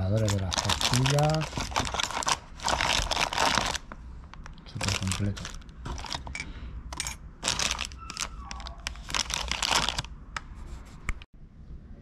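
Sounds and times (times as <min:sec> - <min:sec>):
plastic packaging crinkling: 0:00.0 - 0:06.4, 0:07.4 - 0:10.1.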